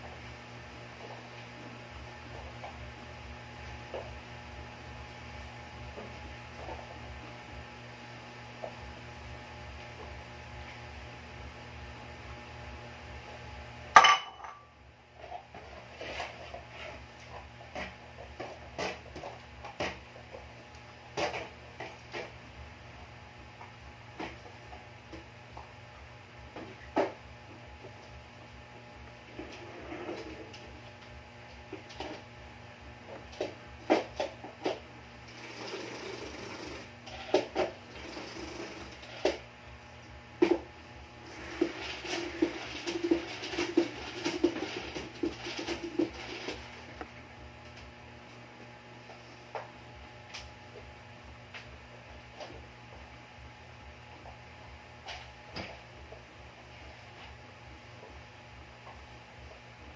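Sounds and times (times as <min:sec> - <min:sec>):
low electrical hum: 0:00.0 - 0:59.9
spin mop whirring rattle: 0:33.2 - 0:39.5, 0:41.2 - 0:47.1.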